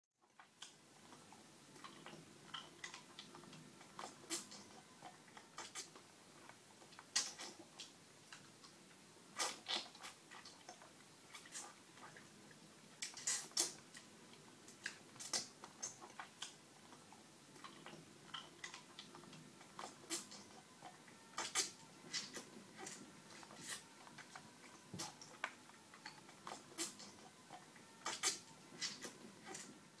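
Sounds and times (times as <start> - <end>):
wet lip smacks and sucking clicks: 5.4 - 6.0, 7.0 - 7.7, 9.4 - 12.3, 13.0 - 14.1, 14.7 - 20.6, 21.4 - 24.4, 25.0 - 27.2, 28.0 - 29.7.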